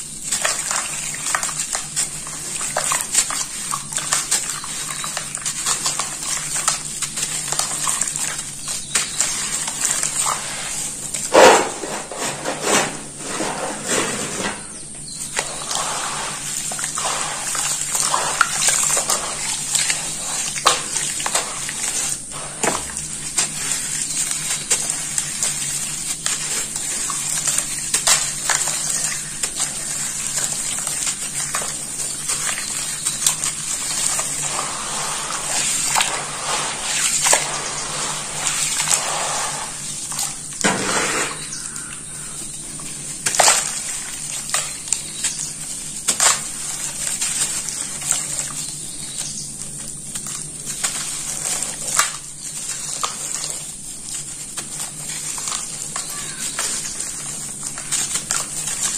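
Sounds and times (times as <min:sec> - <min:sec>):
hands crushing wet sand: 0:00.0 - 0:12.4, 0:14.6 - 0:58.9
water sloshing: 0:15.3 - 0:49.2.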